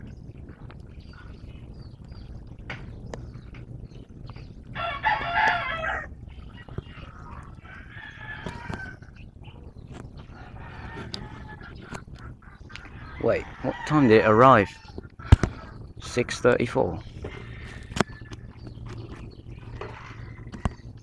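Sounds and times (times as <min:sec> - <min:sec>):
low steady background hum: 0:00.0 - 0:21.0
rooster crowing: 0:04.8 - 0:06.1, 0:07.6 - 0:09.0, 0:10.3 - 0:11.7, 0:13.0 - 0:15.0.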